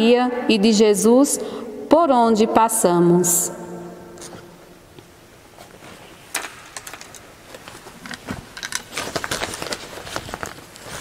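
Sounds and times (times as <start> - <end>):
small clicks and rustles: 5.7 - 11.0.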